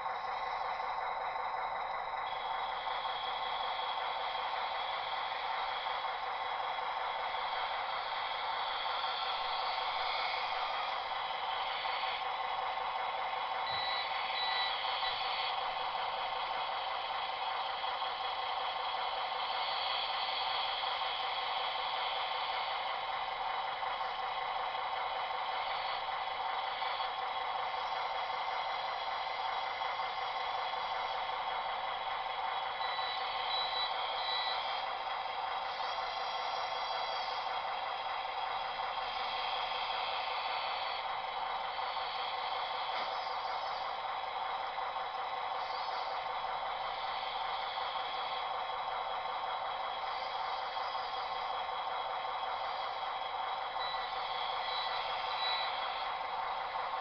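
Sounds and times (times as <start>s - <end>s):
steady hiss: 0.0s - 57.0s
short high reversing beeps: 13.7s - 15.2s, 32.8s - 34.7s, 53.8s - 56.0s.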